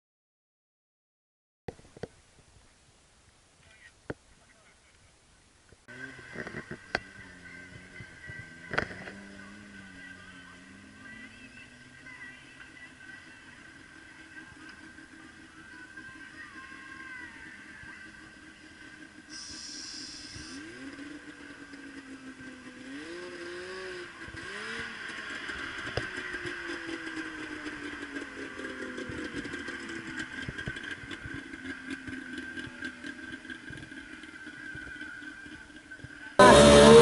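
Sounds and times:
distant small engine revving: 0:05.9 - 0:37.0.

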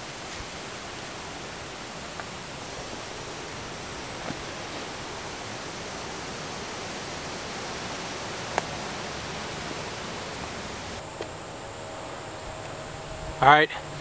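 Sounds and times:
campfire hissing: 0:00.0 - 0:14.0
fire crackling pop: 0:08.4 - 0:11.3.

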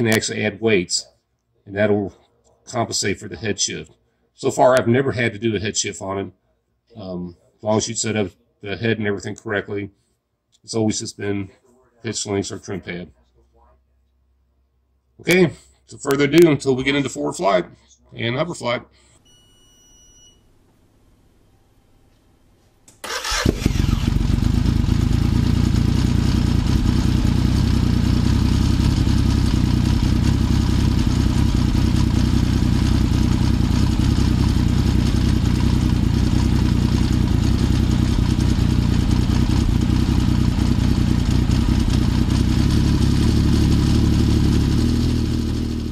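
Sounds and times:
engine running with low drone: 0:23.3 - 0:45.9.

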